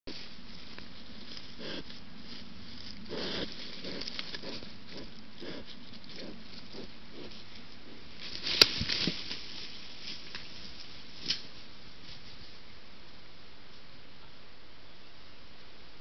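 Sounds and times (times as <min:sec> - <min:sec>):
wild boar grunting softly: 0:01.4 - 0:02.0, 0:02.8 - 0:08.1.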